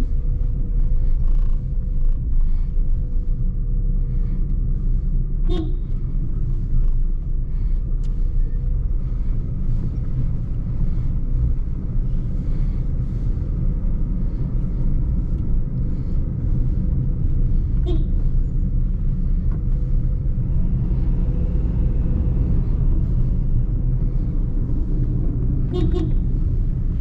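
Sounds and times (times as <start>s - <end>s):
car engine and road noise: 0.0s - 27.0s
car horn toot: 5.5s - 6.0s, 17.8s - 18.2s, 25.7s - 26.3s.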